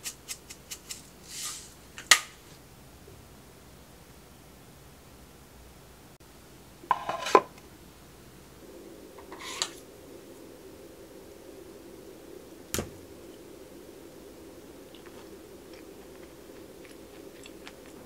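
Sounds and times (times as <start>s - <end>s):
wooden tableware clattering: 6.9s - 7.5s
wooden tableware scraping: 6.9s - 7.5s, 9.2s - 9.8s.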